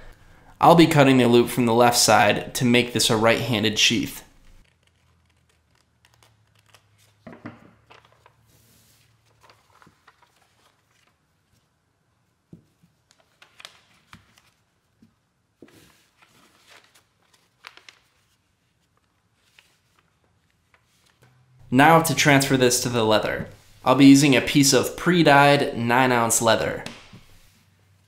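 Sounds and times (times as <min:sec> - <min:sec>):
paper rustling and crinkling: 0:04.6 - 0:11.7, 0:12.8 - 0:21.2.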